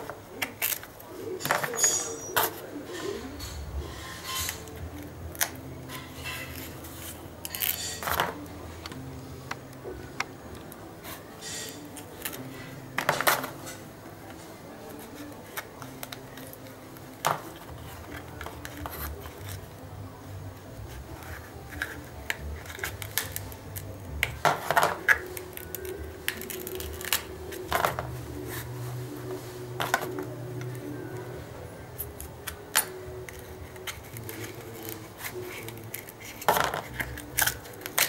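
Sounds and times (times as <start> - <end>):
knife scraping tough fruit rind: 20.8 - 29.0, 32.0 - 38.0.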